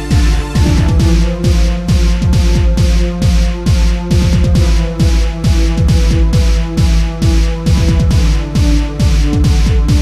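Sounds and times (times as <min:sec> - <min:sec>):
held synthesizer notes: 0:00.0 - 0:02.8
electronic kick drum: 0:00.0 - 0:10.0.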